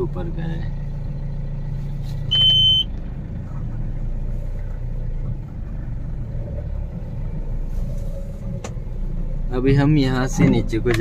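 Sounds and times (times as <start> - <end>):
diesel engine running: 0.0 - 11.0
high-pitched beep: 2.3 - 2.9.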